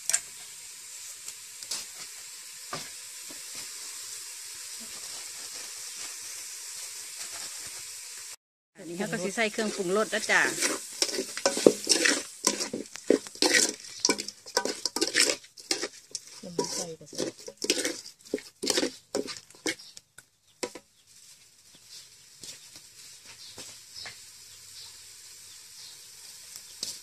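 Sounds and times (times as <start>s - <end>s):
faint sizzle from pot: 0.0s - 27.0s
spatula scraping a pot: 8.9s - 20.0s.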